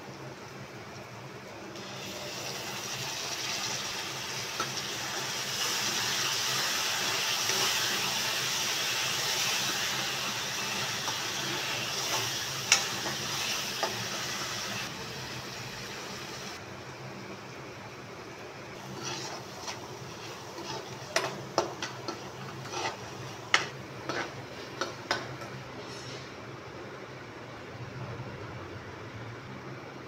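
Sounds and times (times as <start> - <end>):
food sizzling in oil: 1.7 - 16.6, 18.7 - 26.0.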